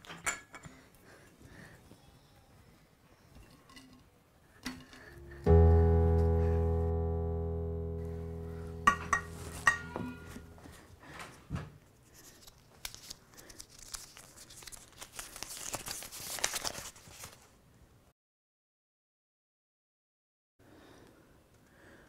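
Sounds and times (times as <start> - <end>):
keyboard chord: 5.0 - 10.9
short ring: 7.8 - 10.7
paper crinkling and tearing: 12.2 - 17.5.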